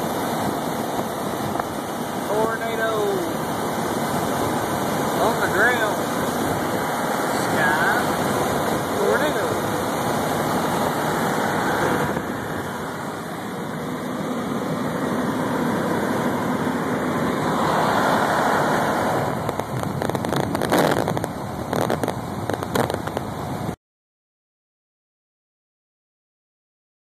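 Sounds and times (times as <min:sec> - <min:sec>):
tyre and wind noise in car: 0:00.0 - 0:23.8
sharp taps and crackles: 0:19.4 - 0:23.3.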